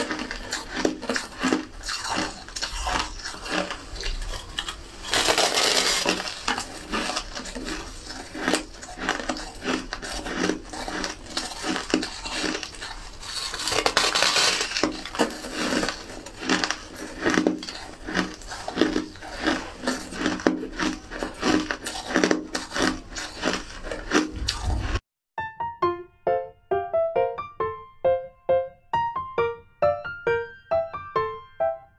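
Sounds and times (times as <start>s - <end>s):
person crunching ice: 0.0s - 25.0s.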